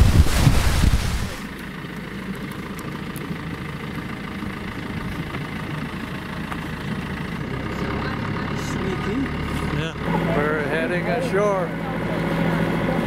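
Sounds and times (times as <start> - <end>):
loud wind on microphone: 0.0 - 1.4
rushing bow wash: 0.0 - 1.5
boat engine idling: 0.0 - 13.0.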